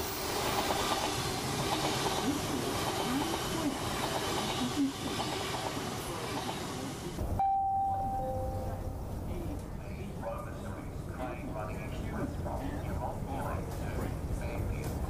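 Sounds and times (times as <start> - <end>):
subway train rumbling and rattling: 0.0 - 7.4, 8.0 - 15.0
steady chime tone: 7.4 - 9.0.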